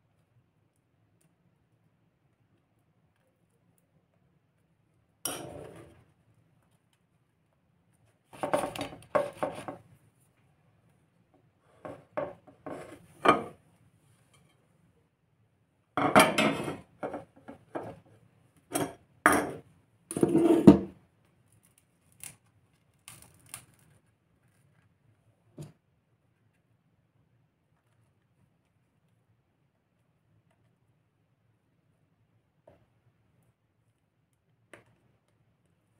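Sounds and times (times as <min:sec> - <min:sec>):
plates and bowls clattering: 0:16.0 - 0:17.2.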